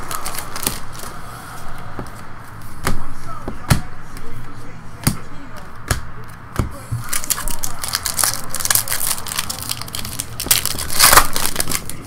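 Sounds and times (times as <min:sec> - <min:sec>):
foil wrapper crinkling and tearing: 0:00.0 - 0:01.2, 0:07.0 - 0:12.0.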